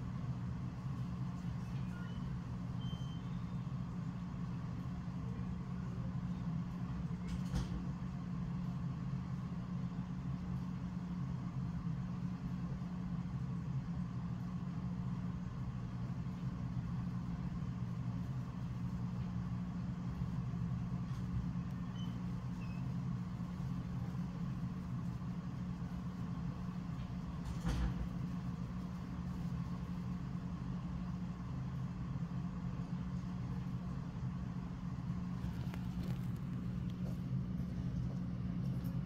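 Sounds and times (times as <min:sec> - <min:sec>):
low mechanical hum: 0:00.0 - 0:39.0
faint high tone: 0:01.6 - 0:03.6.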